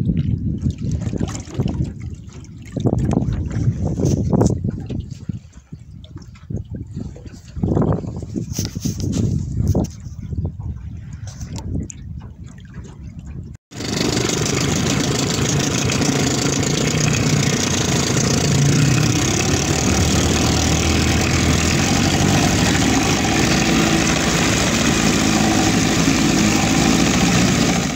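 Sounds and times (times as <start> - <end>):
outboard motor running: 13.7 - 27.9
water rushing and spraying: 13.7 - 27.9.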